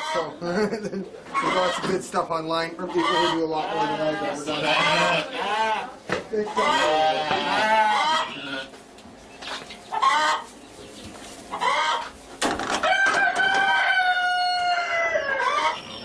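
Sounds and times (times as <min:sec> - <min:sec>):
rooster crowing: 0:12.8 - 0:16.0.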